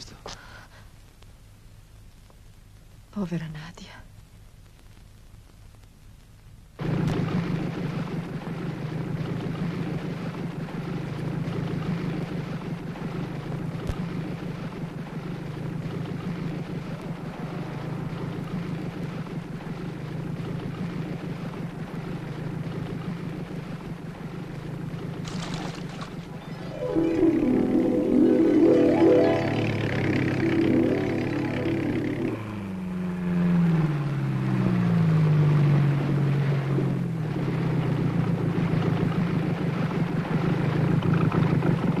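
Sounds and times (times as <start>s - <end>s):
car engine and road noise: 6.8s - 26.4s, 32.3s - 42.0s.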